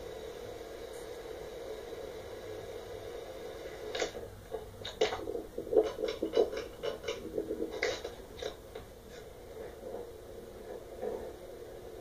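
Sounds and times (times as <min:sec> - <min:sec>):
ceiling fan humming: 0:00.0 - 0:12.0.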